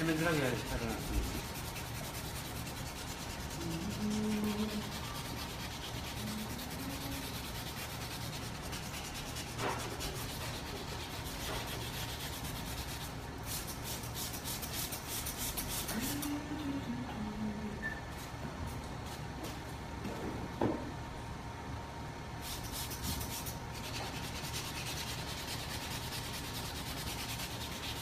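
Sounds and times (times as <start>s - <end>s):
sandpaper rubbing: 0.0s - 16.4s, 22.4s - 28.0s.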